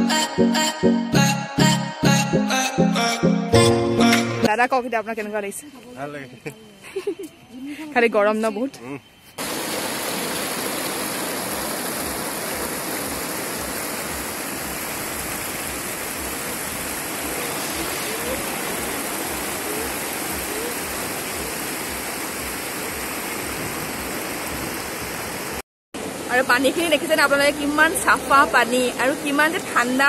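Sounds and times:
stream rushing over boulders: 9.4s - 30.0s.

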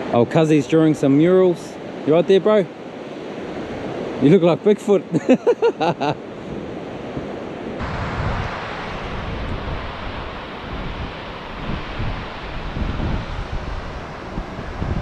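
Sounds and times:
surf washing onto beach: 0.0s - 15.0s
wind rumbling on microphone: 6.2s - 15.0s.

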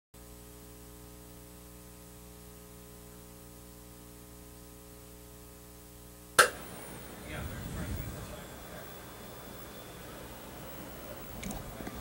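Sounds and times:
electrical hum: 0.2s - 12.0s
steady hiss: 6.4s - 12.0s.

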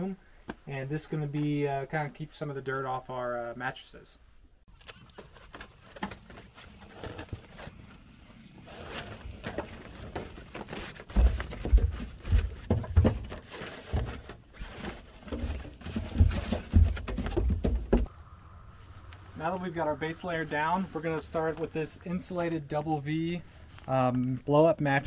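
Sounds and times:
plastic mat rustling: 5.2s - 18.1s
heavy thumps of person crawling: 15.3s - 18.1s.

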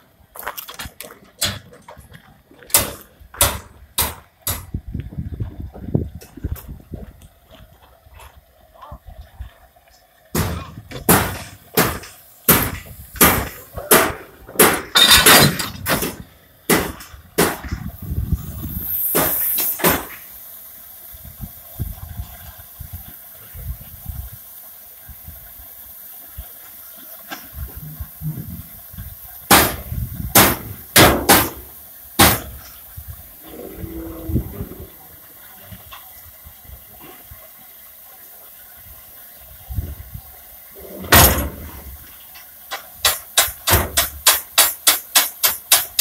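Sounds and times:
steam hissing: 0.0s - 46.0s
steam locomotive chuffing: 10.3s - 39.6s, 40.3s - 46.0s.

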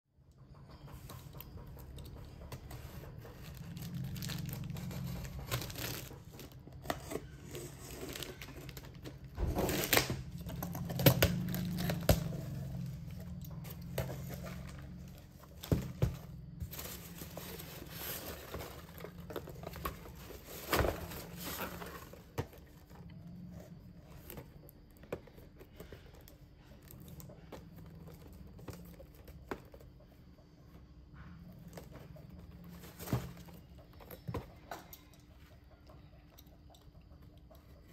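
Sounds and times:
boxes being handled: 0.6s - 35.1s
packing peanuts rustling: 3.3s - 12.4s
packing tape tearing: 3.7s - 12.4s.

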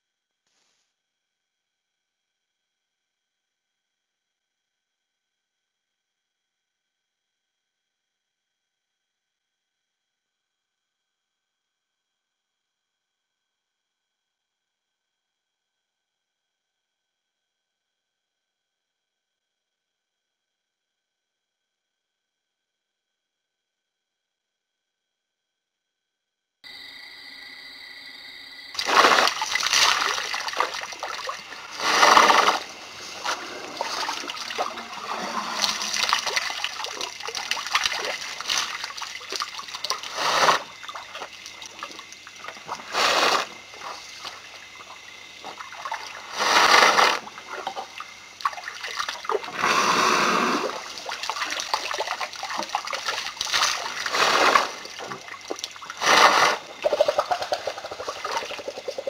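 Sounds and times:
water trickling and sloshing: 28.8s - 49.6s, 50.6s - 59.0s
elephant drinking water splashing: 28.8s - 59.0s.

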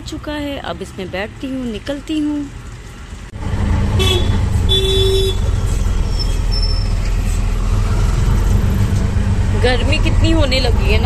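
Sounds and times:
auto-rickshaw engine running: 0.0s - 11.0s
horn tooting: 3.9s - 6.9s.

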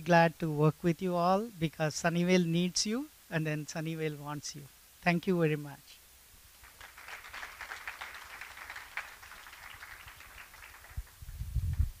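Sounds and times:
audience applauding: 6.6s - 11.2s.

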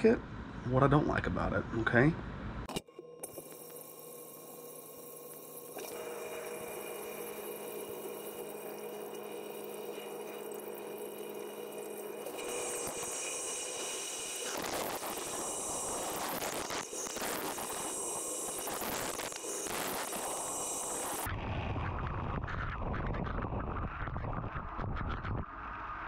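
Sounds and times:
dishwasher pump hum: 2.8s - 21.3s.

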